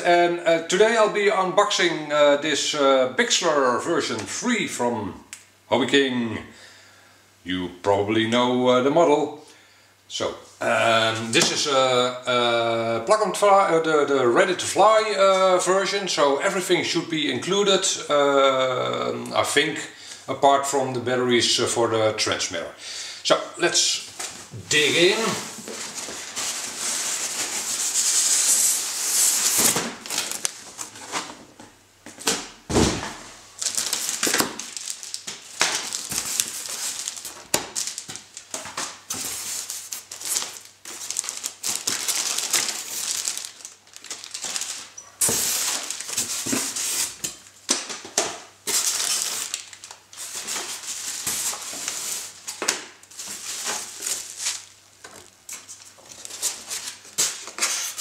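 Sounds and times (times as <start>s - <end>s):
plastic bags crinkling: 24.1s - 31.6s, 32.9s - 58.0s.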